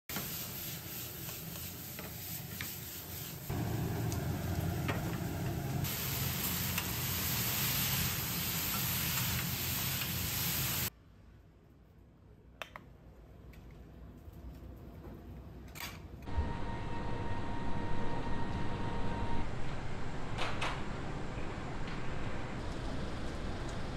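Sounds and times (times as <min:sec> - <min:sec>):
meat and onions sizzling: 0:00.1 - 0:10.9.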